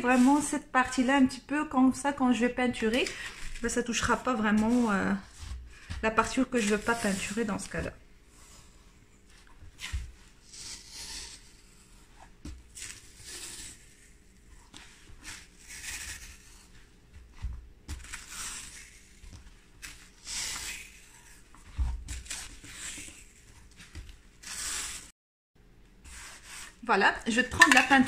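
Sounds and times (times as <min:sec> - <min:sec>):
tape rubbing on rope basket: 0:06.2 - 0:07.8, 0:09.4 - 0:17.0, 0:18.0 - 0:25.1, 0:26.0 - 0:26.8.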